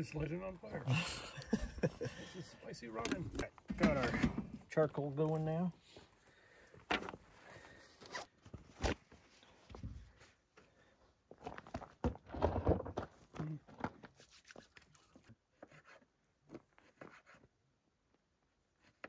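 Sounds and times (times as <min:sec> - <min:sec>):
camp cooking gear clattering: 0:03.0 - 0:04.8.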